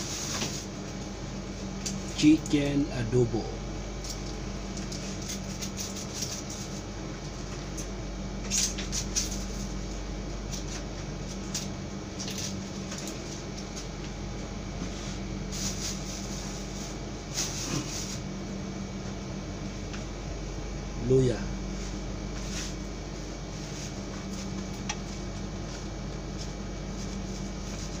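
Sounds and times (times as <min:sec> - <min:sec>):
air conditioner hum: 0:00.0 - 0:28.0.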